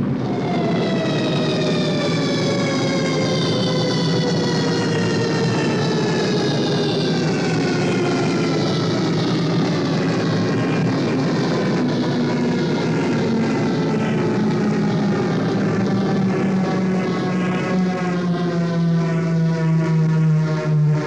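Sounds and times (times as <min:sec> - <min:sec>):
rushing noise: 0:00.0 - 0:20.0
droning hum: 0:06.7 - 0:20.2.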